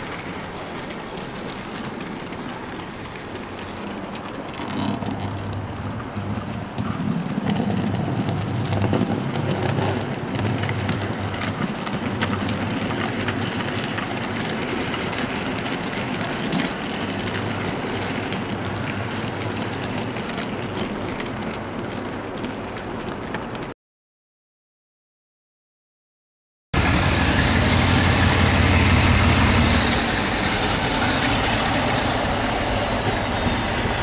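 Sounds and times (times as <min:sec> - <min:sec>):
wheels clicking over track: 0:00.0 - 0:23.7, 0:26.8 - 0:34.0
model train motor hum: 0:26.8 - 0:34.0.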